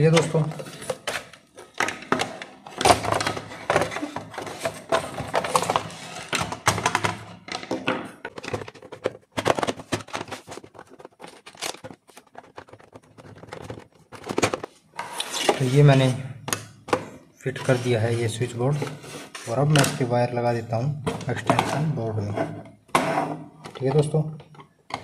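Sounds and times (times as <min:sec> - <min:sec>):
plastic knocks and clicks: 0:01.6 - 0:14.7.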